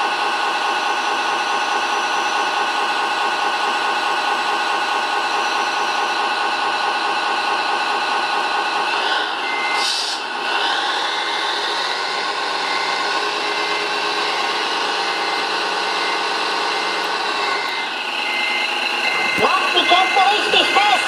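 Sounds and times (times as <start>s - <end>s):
electric winch whining: 0.0s - 21.0s
faint repeating beep: 15.0s - 21.0s.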